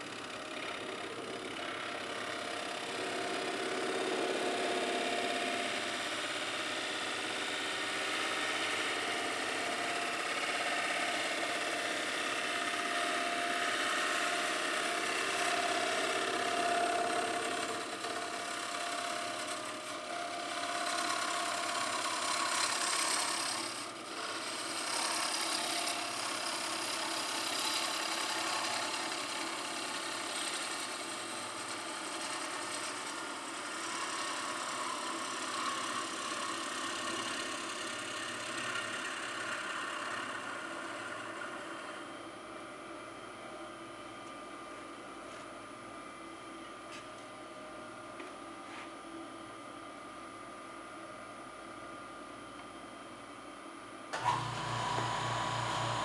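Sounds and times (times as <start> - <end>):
lathe humming: 0.1 - 42.1, 54.2 - 56.0.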